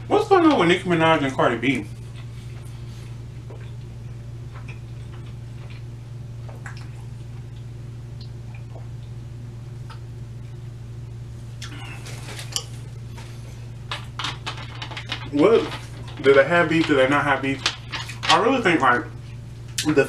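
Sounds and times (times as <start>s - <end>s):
steady low hum: 0.0s - 20.0s
small liquid clicks: 6.5s - 9.2s.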